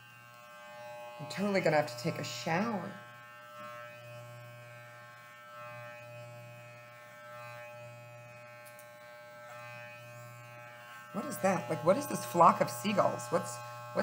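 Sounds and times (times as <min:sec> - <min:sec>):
electric hair clippers buzzing: 0:00.0 - 0:14.0.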